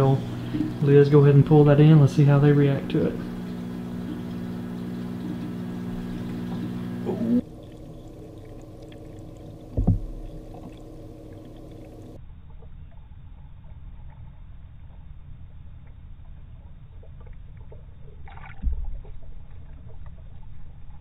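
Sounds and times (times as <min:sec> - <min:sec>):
muffled underwater noise: 0:00.0 - 0:07.5
electrical hum: 0:00.0 - 0:21.0
loud thump: 0:09.8 - 0:10.1.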